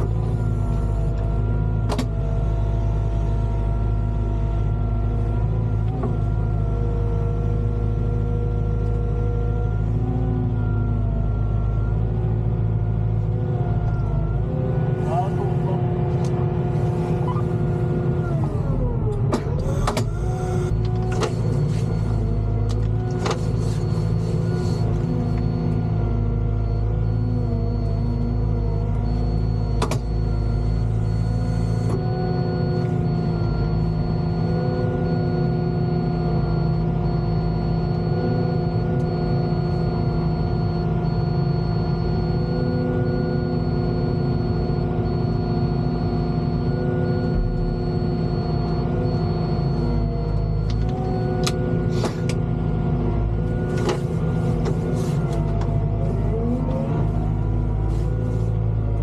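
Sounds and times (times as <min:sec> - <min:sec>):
diesel engine running: 0:00.0 - 0:59.0
hydraulic whine: 0:15.0 - 0:25.8, 0:44.2 - 0:52.4.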